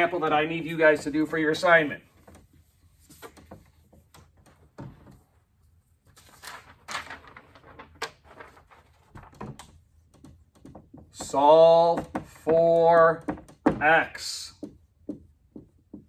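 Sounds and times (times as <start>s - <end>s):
paper sheet swishing: 6.0s - 9.3s
small knocks and clicks: 9.1s - 11.4s.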